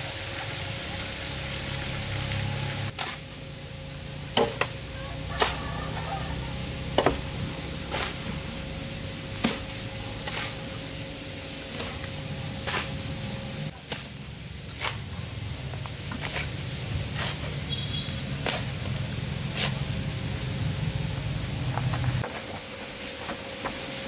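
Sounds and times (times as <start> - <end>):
low steady hum: 0.0 - 22.6
shovel scraping mortar: 7.8 - 8.4, 9.4 - 10.7, 11.7 - 13.0, 13.7 - 15.2, 16.1 - 17.6, 18.4 - 18.8, 19.5 - 19.9.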